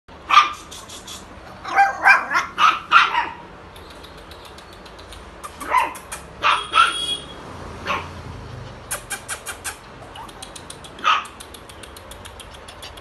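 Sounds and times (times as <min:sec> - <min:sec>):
puppy yapping: 0:01.6 - 0:03.5, 0:05.4 - 0:07.2, 0:07.8 - 0:13.0.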